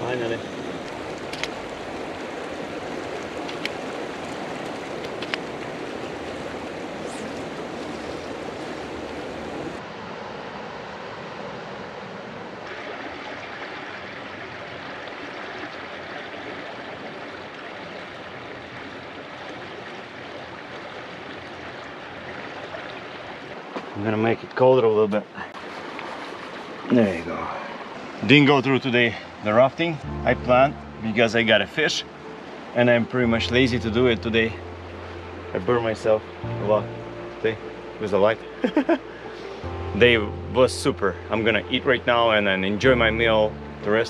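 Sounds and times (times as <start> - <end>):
river rushing over rock: 0.0 - 24.0, 31.2 - 36.8.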